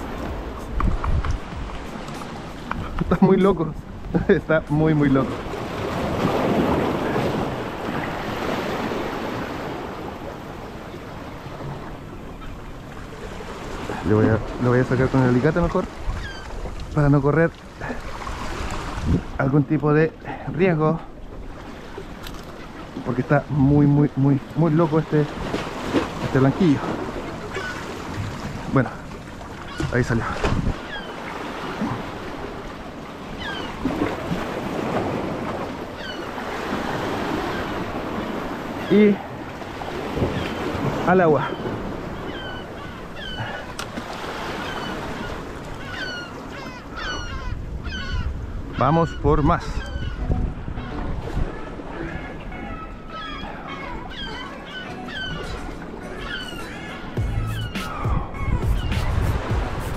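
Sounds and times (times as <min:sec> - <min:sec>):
wind on microphone: 0:00.0 - 0:03.2, 0:17.9 - 0:19.4, 0:29.8 - 0:30.9, 0:47.2 - 0:52.7, 0:57.2 - 0:59.9
sea waves washing: 0:00.0 - 0:59.9.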